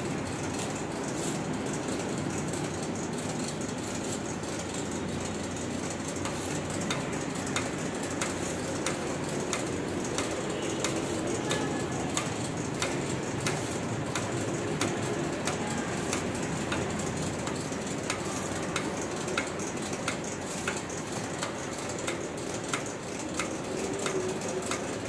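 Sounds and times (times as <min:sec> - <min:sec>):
workshop machinery running: 0:00.0 - 0:25.0
sharp machine click: 0:06.1 - 0:25.0.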